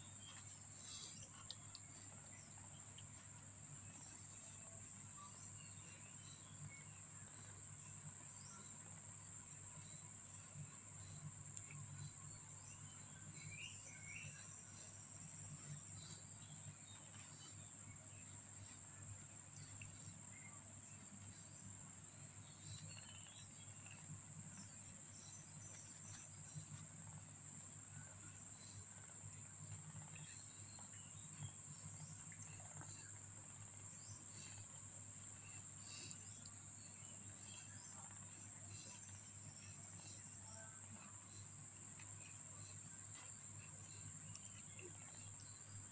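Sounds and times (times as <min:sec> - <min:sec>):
faint low hum: 0:00.0 - 0:45.9
cat licking and grooming: 0:14.4 - 0:45.9.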